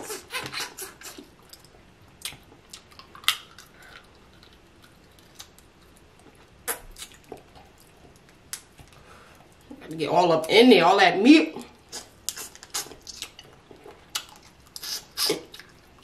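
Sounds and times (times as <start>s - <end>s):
wet eating clicks and smacks: 0.4s - 9.0s, 12.0s - 16.0s.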